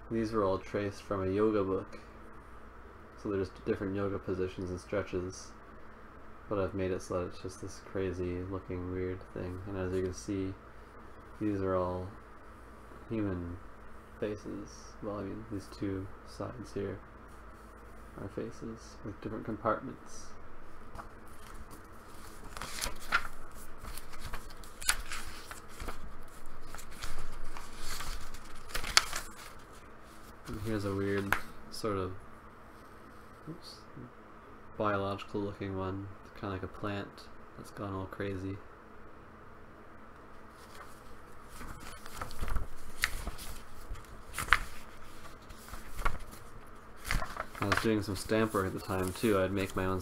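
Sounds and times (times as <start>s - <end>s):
paper pages rustling: 20.9s - 31.6s, 40.5s - 50.0s
sharp paper snaps: 26.7s - 29.5s, 41.6s - 44.8s.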